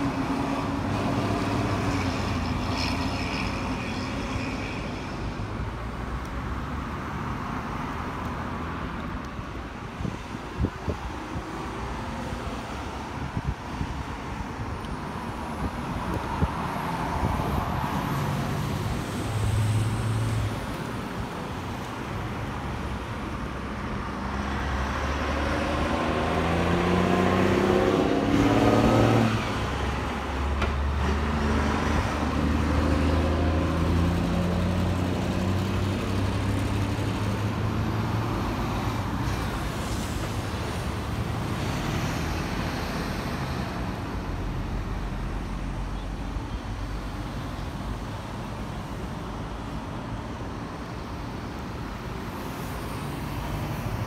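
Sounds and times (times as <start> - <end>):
fire truck engines passing: 0.0 - 54.0.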